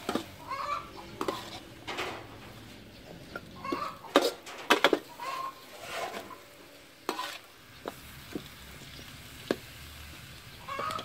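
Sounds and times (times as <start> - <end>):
metal spatula scraping a wok: 0.0 - 8.0
sharp metal clanks: 1.8 - 2.7, 4.0 - 5.1
faint sizzle: 4.4 - 11.0.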